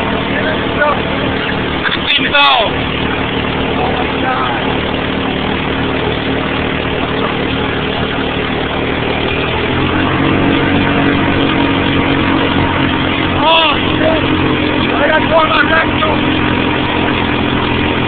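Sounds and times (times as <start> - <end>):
atv engine running: 0.0 - 18.0
constant rushing noise: 0.0 - 18.0.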